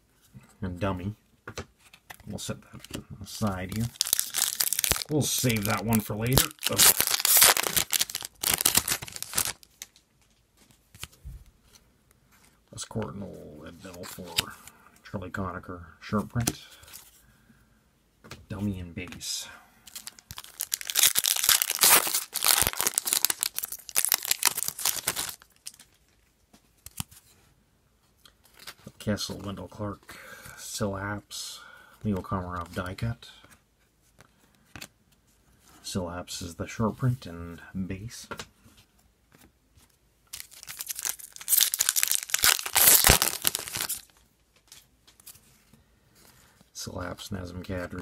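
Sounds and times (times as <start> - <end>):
cards ticking: 3.6 - 10.0, 19.9 - 25.9, 40.4 - 44.1
foil wrapper tearing and crinkling: 3.8 - 10.0, 19.9 - 26.0, 40.3 - 44.1
faint clicks of cards handled: 25.6 - 27.4, 32.8 - 35.2, 38.3 - 40.0.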